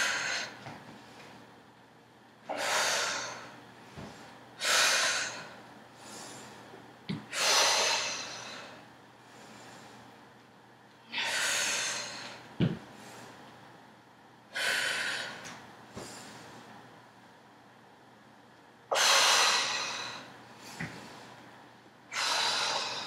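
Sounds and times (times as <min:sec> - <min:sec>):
woman breathing hard: 0:00.0 - 0:01.4, 0:02.5 - 0:10.1, 0:11.1 - 0:13.5, 0:14.5 - 0:16.7, 0:18.9 - 0:21.4, 0:22.1 - 0:23.0
sneakers thumping on wooden floor: 0:12.6 - 0:12.8.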